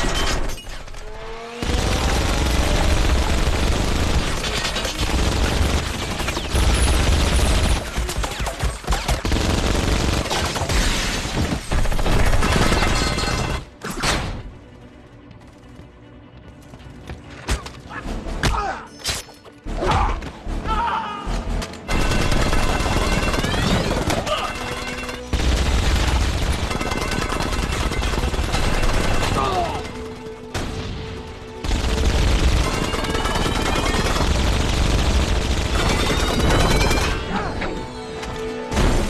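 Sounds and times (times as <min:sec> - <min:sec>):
film score music: 0:00.0 - 0:39.0
heavy gunfire: 0:01.6 - 0:13.1, 0:21.9 - 0:37.0.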